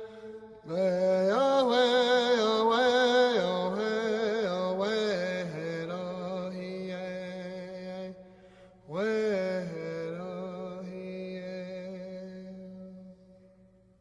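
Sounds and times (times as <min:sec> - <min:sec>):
person chanting wordless melody: 0:00.0 - 0:13.7.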